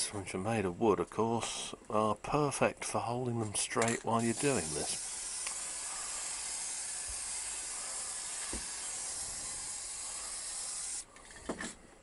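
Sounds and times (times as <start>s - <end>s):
aerosol spray can hissing: 4.2s - 11.1s.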